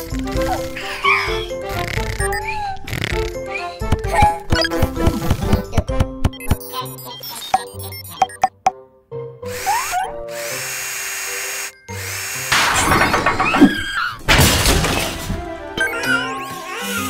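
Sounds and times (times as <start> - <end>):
cartoon power drill whirring: 0.0 - 5.8, 9.5 - 14.1
upbeat cartoon music: 0.0 - 17.0.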